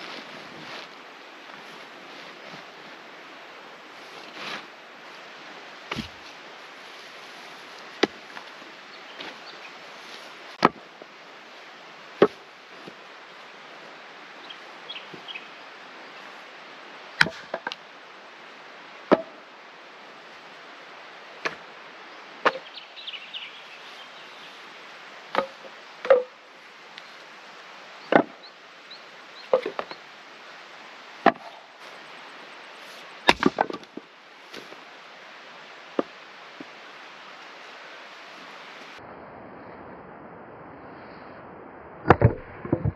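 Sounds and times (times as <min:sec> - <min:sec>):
axe chopping firewood: 0:05.9 - 0:06.2, 0:08.0 - 0:08.2, 0:10.6 - 0:10.8, 0:17.2 - 0:17.8, 0:19.1 - 0:19.4, 0:22.4 - 0:22.7, 0:25.3 - 0:26.3, 0:31.2 - 0:31.6, 0:33.2 - 0:33.9
wood clattering knocks: 0:29.5 - 0:30.0, 0:33.3 - 0:34.0.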